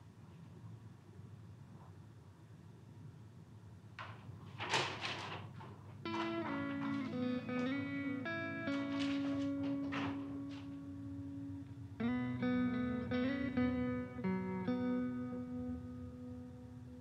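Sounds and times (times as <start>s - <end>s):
guitar playing plucked notes: 6.1s - 17.0s.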